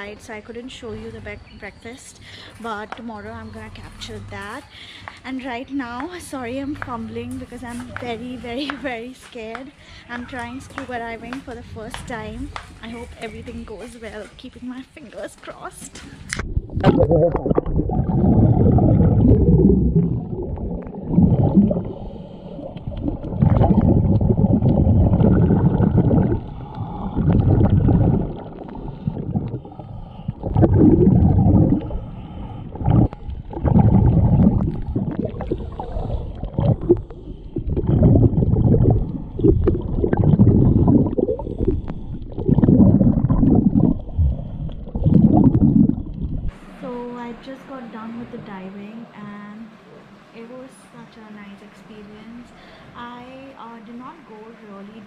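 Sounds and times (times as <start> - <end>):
underwater bubbles gurgling: 16.3 - 46.6
diver breathing through regulator: 21.6 - 23.0, 25.8 - 46.5.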